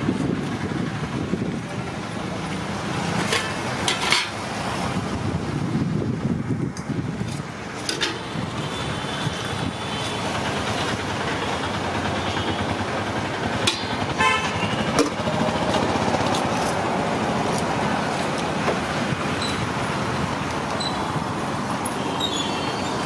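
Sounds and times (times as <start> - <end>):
road traffic noise: 0.0 - 23.0
spoons clinking against metal pots: 3.2 - 4.4
vehicle horn: 14.2 - 15.1.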